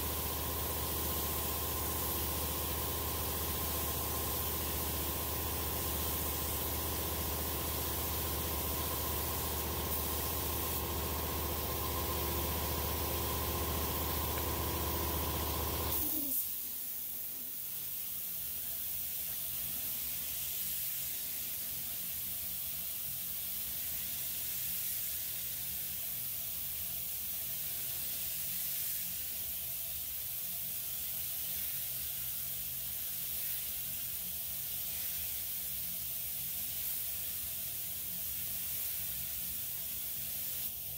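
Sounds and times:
air compressor motor humming: 0:00.0 - 0:16.4
spray gun hissing: 0:00.0 - 0:40.9
compressor shutoff click: 0:13.5 - 0:16.2.

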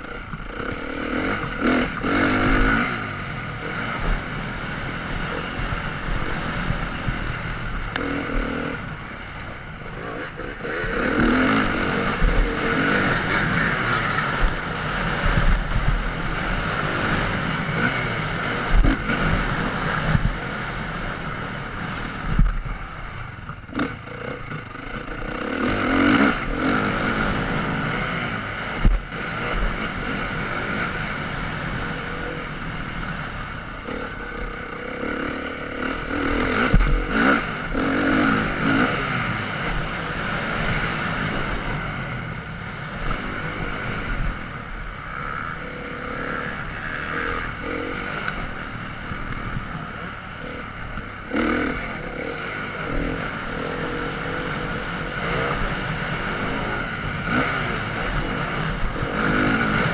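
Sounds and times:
motocross bike engine: 0:00.0 - 0:59.9
wind rush on microphone: 0:03.4 - 0:23.4, 0:35.8 - 0:45.2.

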